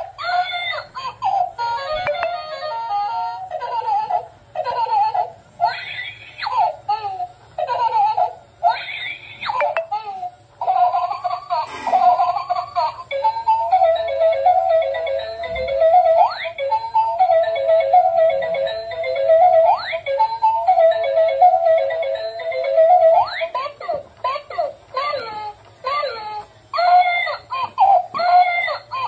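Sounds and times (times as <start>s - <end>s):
recorded baby giggling and babbling: 0.0s - 13.9s, 22.0s - 29.0s.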